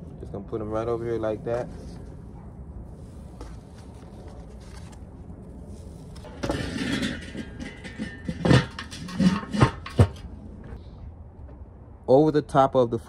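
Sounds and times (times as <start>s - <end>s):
metal lid scraping and rattling: 6.2s - 10.4s
sharp metal knocks and clanks: 6.2s - 10.4s.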